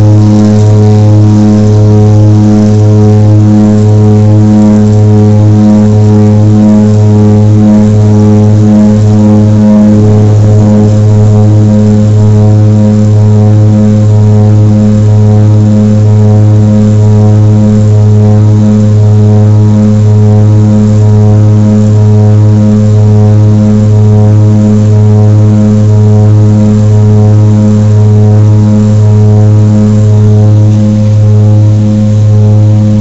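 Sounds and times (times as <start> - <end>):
propeller aircraft cabin drone: 0.0 - 33.0.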